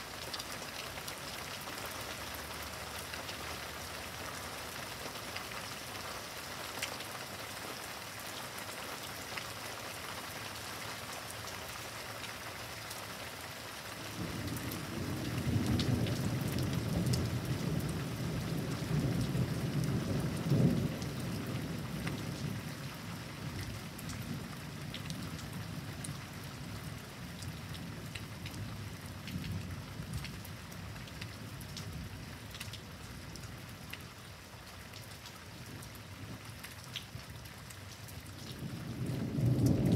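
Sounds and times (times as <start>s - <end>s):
steady rain: 0.0s - 39.9s
raindrops ticking: 14.0s - 39.9s.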